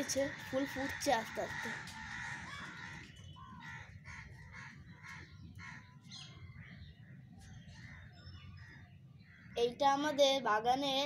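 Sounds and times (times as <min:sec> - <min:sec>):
crows cawing: 0:00.0 - 0:06.8.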